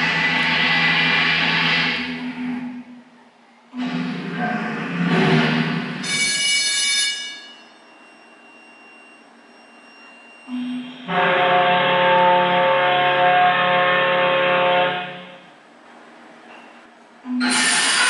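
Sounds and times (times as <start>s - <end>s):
low ship whistle blast: 10.5s - 15.4s.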